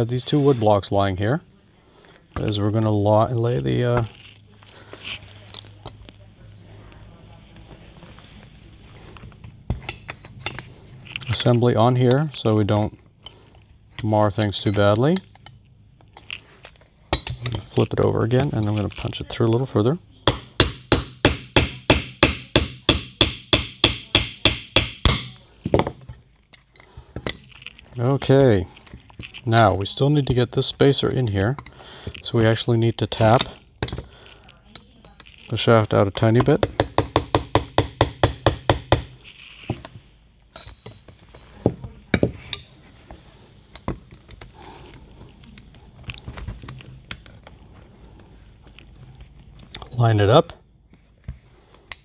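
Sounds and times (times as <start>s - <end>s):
hammer tapping metal: 20.2s - 25.9s, 36.4s - 39.2s
metal handling clinks: 40.5s - 42.7s.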